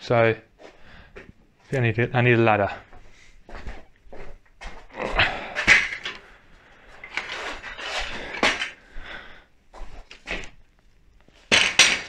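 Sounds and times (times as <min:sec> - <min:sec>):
stepladder clattering and knocking: 0:03.6 - 0:06.3, 0:07.0 - 0:08.8, 0:11.5 - 0:12.0.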